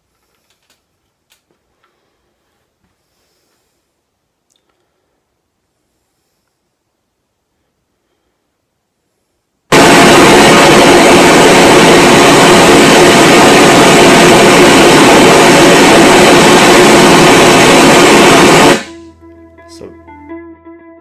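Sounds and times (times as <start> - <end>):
loudspeaker playing pink noise: 9.7 - 19.0.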